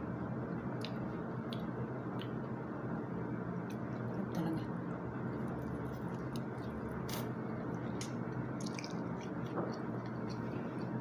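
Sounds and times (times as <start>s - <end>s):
person chewing food: 5.3s - 11.0s.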